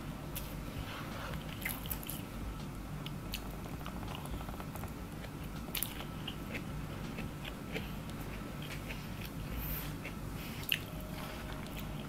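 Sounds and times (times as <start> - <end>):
low steady rumble: 0.0 - 12.0
chewing with mouth clicks: 3.0 - 12.0.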